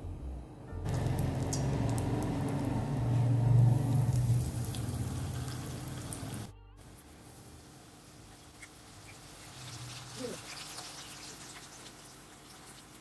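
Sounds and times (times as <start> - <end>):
low hum: 0.0 - 7.1
onion ring deep-frying in oil: 0.9 - 13.0.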